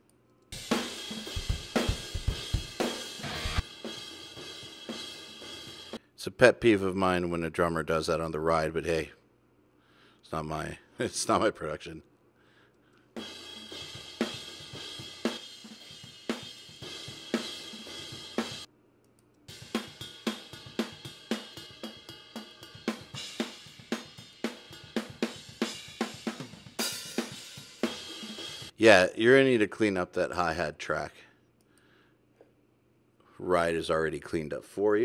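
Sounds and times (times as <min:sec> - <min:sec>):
snare and kick drum bleed: 0:00.6 - 0:05.8, 0:19.5 - 0:28.7.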